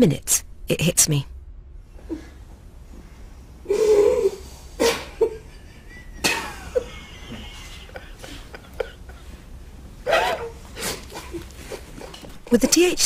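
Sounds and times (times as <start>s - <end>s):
woman laughing breathily: 5.1s - 9.6s.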